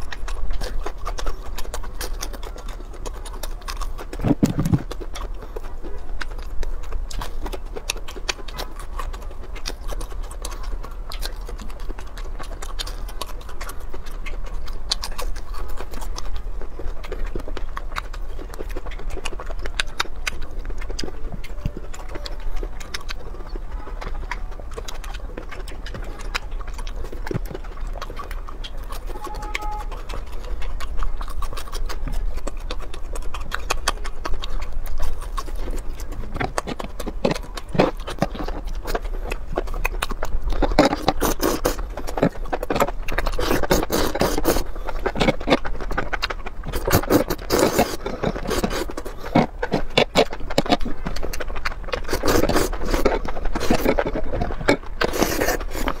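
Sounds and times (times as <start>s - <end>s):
slurping: 0.0s - 6.2s, 18.1s - 56.0s
chewing and wet smacking: 0.0s - 56.0s.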